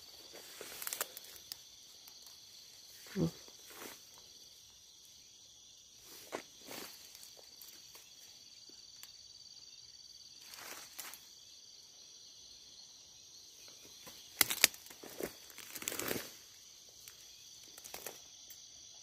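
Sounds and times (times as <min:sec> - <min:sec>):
rustling through dry undergrowth: 0:00.0 - 0:04.5, 0:05.9 - 0:08.3, 0:10.4 - 0:11.4, 0:13.9 - 0:18.2
night insects chirring: 0:00.0 - 0:19.0.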